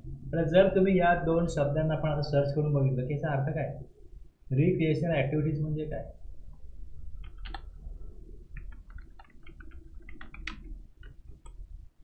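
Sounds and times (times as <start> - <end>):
low steady hum: 0.0 - 12.0
keyboard keys clicking: 7.2 - 7.7, 8.6 - 11.6.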